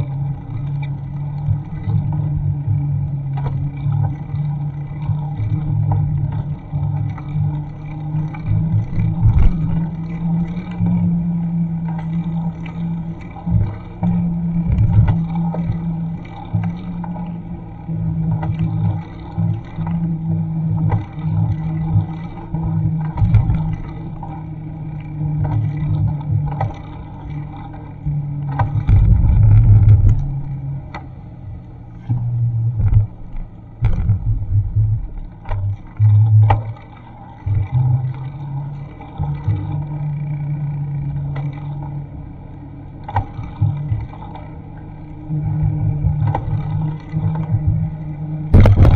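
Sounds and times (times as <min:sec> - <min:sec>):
wind buffeting microphone: 0:28.8 - 0:30.6, 0:47.5 - 0:48.9.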